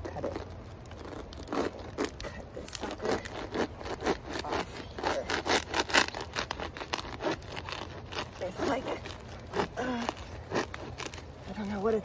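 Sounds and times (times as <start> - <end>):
knife sawing dry fronds: 0.0 - 12.0.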